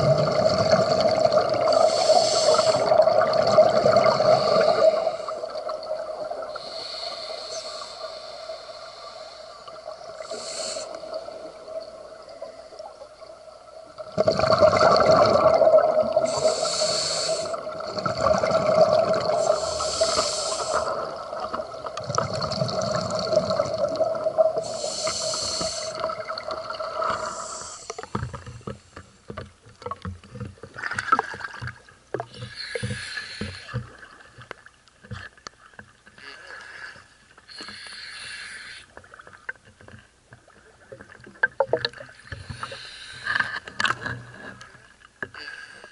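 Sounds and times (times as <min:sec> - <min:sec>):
exhaled bubbles rushing: 0:00.0 - 0:06.6, 0:14.0 - 0:16.8, 0:17.5 - 0:20.1, 0:20.8 - 0:24.8, 0:25.9 - 0:27.3
water splashing and sloshing: 0:00.0 - 0:08.2, 0:08.9 - 0:38.0, 0:38.9 - 0:45.9
underwater hum: 0:00.0 - 0:45.9
scuba breathing through regulator: 0:01.8 - 0:03.0, 0:04.0 - 0:05.5, 0:06.5 - 0:11.2, 0:16.2 - 0:17.7, 0:19.2 - 0:21.5, 0:24.6 - 0:26.2, 0:27.0 - 0:28.9, 0:32.3 - 0:33.9, 0:36.5 - 0:39.0, 0:42.2 - 0:43.7.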